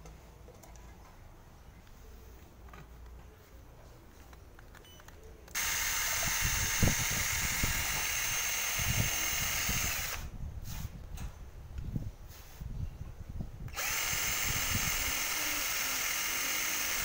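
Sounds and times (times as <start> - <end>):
cordless drill whine: 5.6 - 10.3, 13.7 - 17.0.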